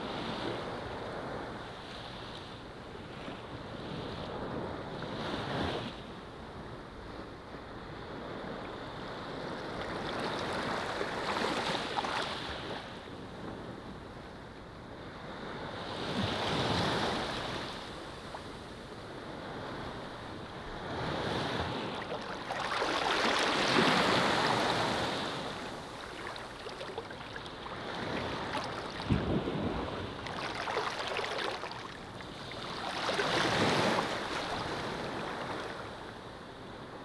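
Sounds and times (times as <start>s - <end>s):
ocean waves washing onto beach: 15.0s - 37.0s.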